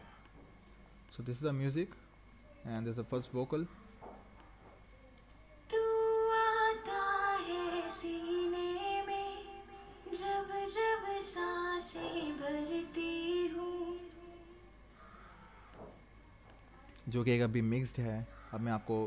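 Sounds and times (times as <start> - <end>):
person singing a melody: 5.7 - 14.7.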